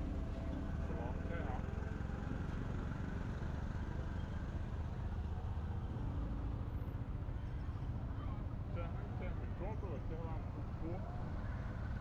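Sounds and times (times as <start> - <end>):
city traffic noise: 0.0 - 12.0.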